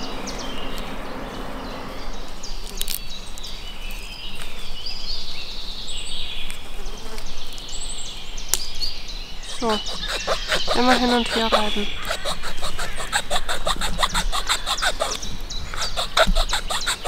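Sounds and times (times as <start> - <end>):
hand tool scraping wood: 9.5 - 17.0.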